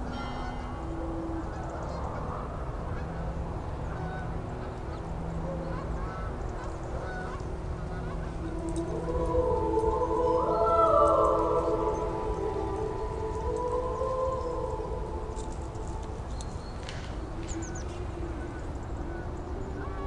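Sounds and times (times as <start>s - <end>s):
geese honking in flight: 1.5s - 16.4s.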